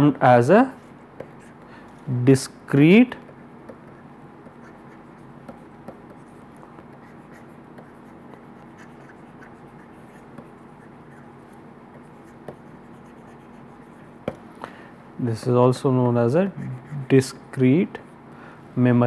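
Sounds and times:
stylus tapping on pen tablet: 0:01.2 - 0:01.4, 0:03.2 - 0:10.8, 0:12.0 - 0:14.5.

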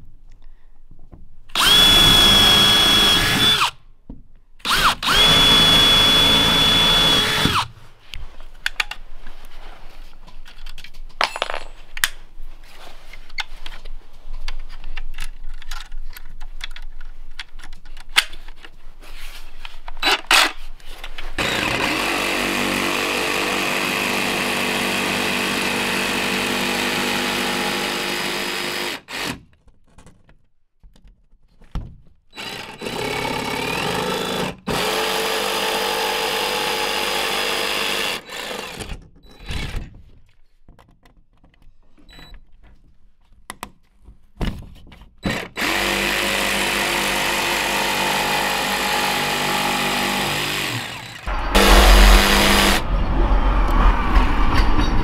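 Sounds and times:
jigsaw cutting wood: 0:01.6 - 0:03.8, 0:04.6 - 0:07.7, 0:21.4 - 0:29.4, 0:32.4 - 0:39.0, 0:45.3 - 0:52.8.

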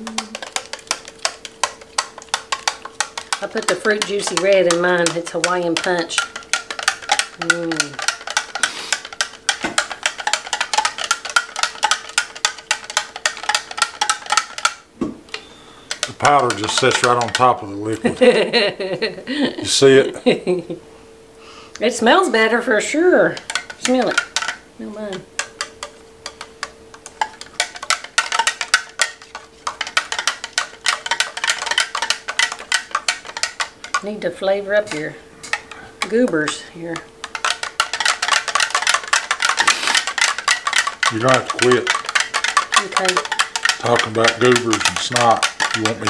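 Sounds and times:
faint steady hum: 0:00.0 - 0:46.0
spoon clinking in cup: 0:37.3 - 0:46.0.

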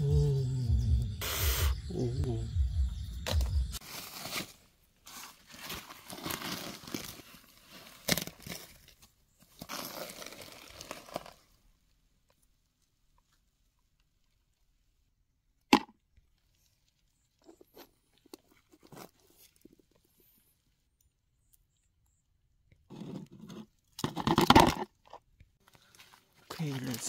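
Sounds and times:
rustling and crunching handling: 0:03.8 - 0:15.1, 0:16.2 - 0:20.9, 0:22.9 - 0:27.0.

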